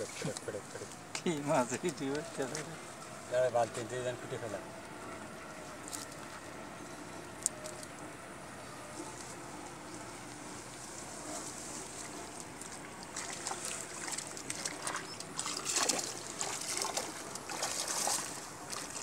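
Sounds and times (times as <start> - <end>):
wet rustling and squelching in mud: 8.6 - 19.0.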